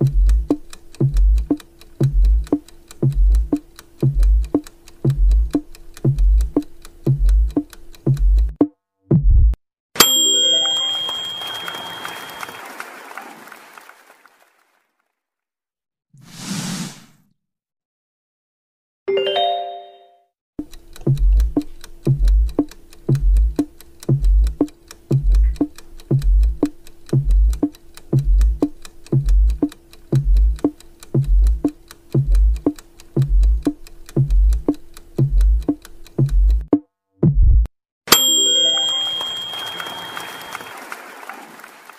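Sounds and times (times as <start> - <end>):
clock-like ticking: 0.0 - 8.7, 20.6 - 36.8
countdown timer music: 0.0 - 8.7, 10.1 - 11.8, 19.1 - 36.8, 38.1 - 40.6
short chime: 10.0 - 12.8, 19.2 - 20.2, 38.1 - 40.9.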